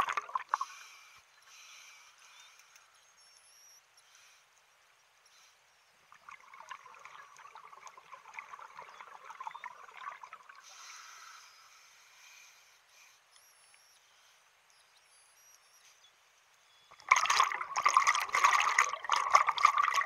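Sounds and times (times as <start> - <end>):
scuba bubbles gurgling: 0.0 - 0.7, 6.1 - 10.7, 16.9 - 20.0
faint hiss: 0.0 - 17.0.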